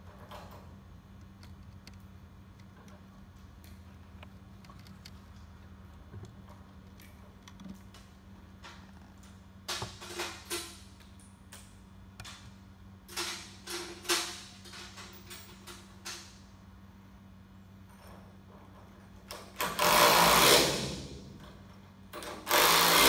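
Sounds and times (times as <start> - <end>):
steady low hum: 0.0 - 22.8.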